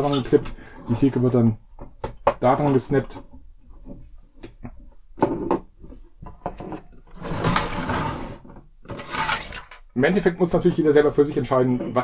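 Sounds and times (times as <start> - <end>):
plastic bricks clicking and knocking: 8.9 - 9.9.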